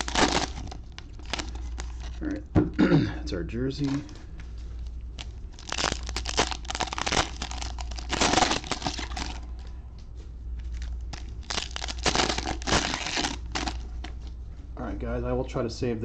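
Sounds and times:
foil wrapper tearing and crinkling: 0:00.0 - 0:02.3, 0:05.2 - 0:09.6, 0:10.6 - 0:14.2.

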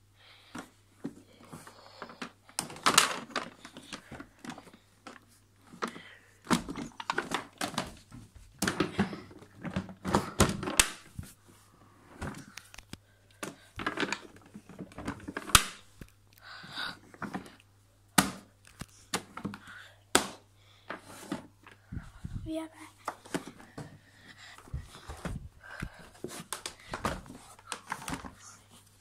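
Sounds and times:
handling clicks knocks and rustles: 0:01.9 - 0:11.3, 0:12.2 - 0:16.4.

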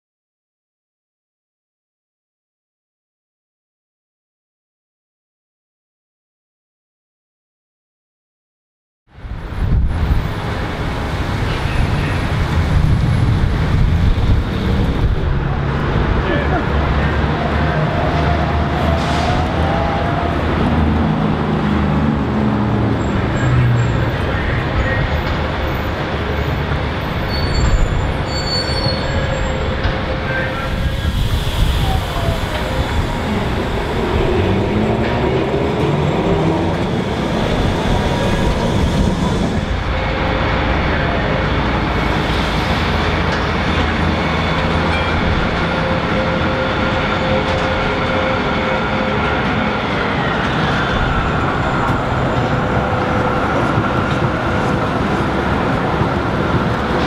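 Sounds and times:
tram motor whine: 0:16.8 - 0:57.0.

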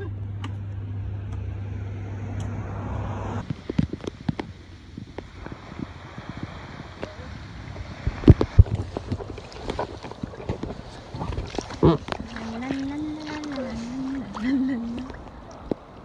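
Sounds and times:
low hum: 0:00.0 - 0:16.0
wind buffeting microphone: 0:03.4 - 0:16.0.

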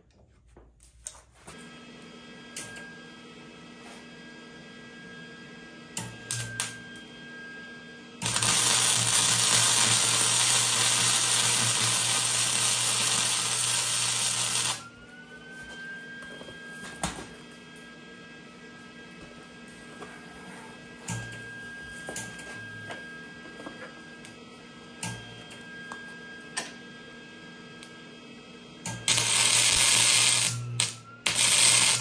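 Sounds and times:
welder crackling hiss: 0:08.2 - 0:14.8, 0:29.1 - 0:32.0.

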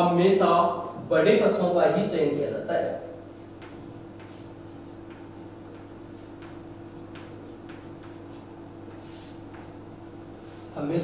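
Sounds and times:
steady low hum: 0:00.0 - 0:11.0
chalk writing on chalkboard: 0:03.3 - 0:09.8.

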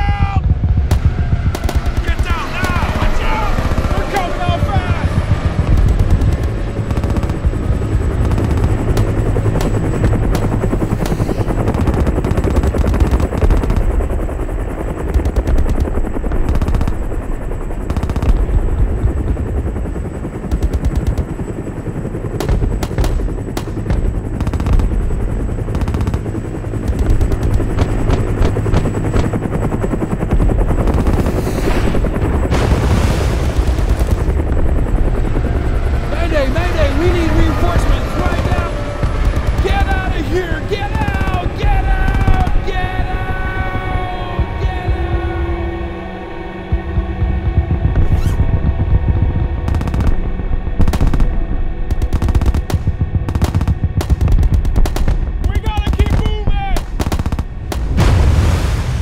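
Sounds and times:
gunshots: 0:00.0 - 0:14.0, 0:15.1 - 0:17.2, 0:17.8 - 0:18.8, 0:20.4 - 0:21.4, 0:22.4 - 0:29.5, 0:30.8 - 0:34.8, 0:36.2 - 0:43.6, 0:49.6 - 0:59.0
machine-gun fire: 0:00.0 - 0:14.2, 0:15.1 - 0:19.4, 0:20.4 - 0:21.4, 0:22.4 - 0:30.0, 0:30.7 - 0:35.0, 0:36.6 - 0:43.0, 0:49.6 - 0:59.0
deep rumble: 0:00.0 - 0:59.0
rushes of noise: 0:57.4 - 0:59.0.

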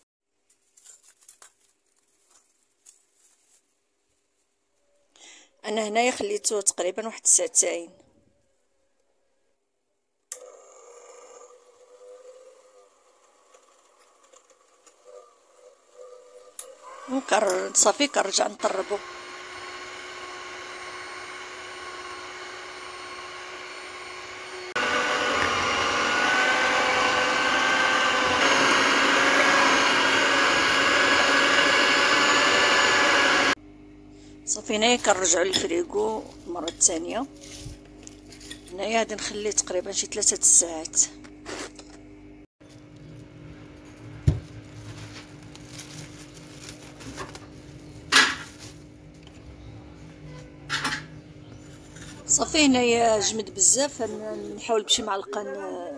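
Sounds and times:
cling film crinkling: 0:00.4 - 0:04.6, 0:43.9 - 0:48.9
electric hand mixer running: 0:10.4 - 0:13.8, 0:17.0 - 0:33.6.

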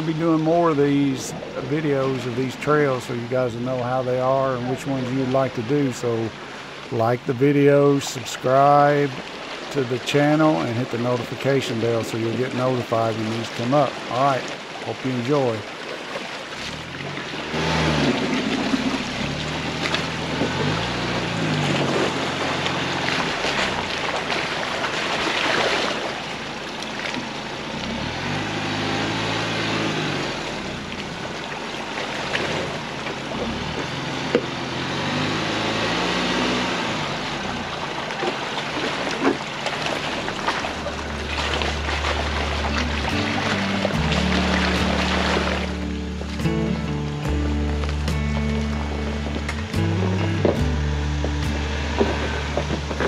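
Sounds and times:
water splashing: 0:00.0 - 0:53.0
vehicle engine revving: 0:16.4 - 0:53.0.

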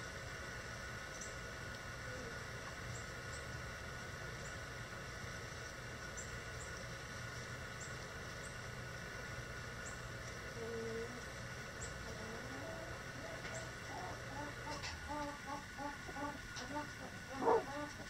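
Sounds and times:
hen call: 0:12.2 - 0:18.0.

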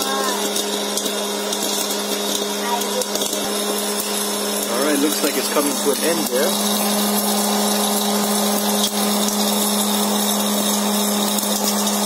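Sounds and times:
hot air blowing: 0:00.0 - 0:12.0
popcorn popper motor hum: 0:00.0 - 0:12.0
popcorn popping: 0:00.0 - 0:12.0.

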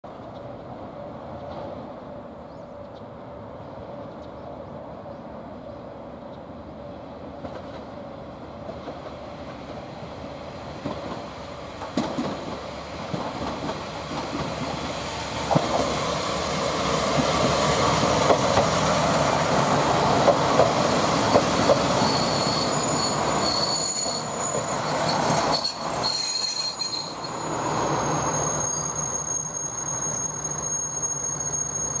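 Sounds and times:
diesel train engine and wheels: 0:00.0 - 0:32.0
brakes squealing: 0:21.7 - 0:32.0.

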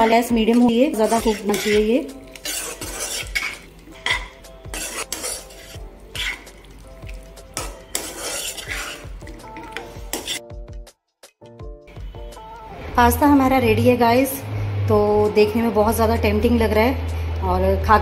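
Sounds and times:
spoon scraping a pan: 0:00.0 - 0:10.6.

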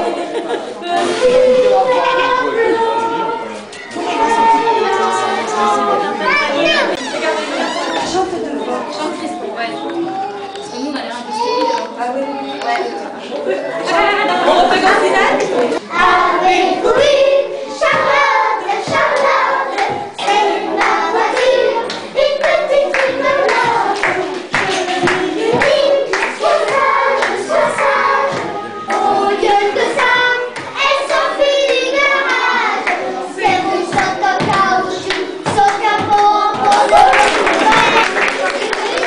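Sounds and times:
women singing together: 0:00.0 - 0:06.9, 0:13.9 - 0:38.0
hand claps: 0:33.9 - 0:39.0.

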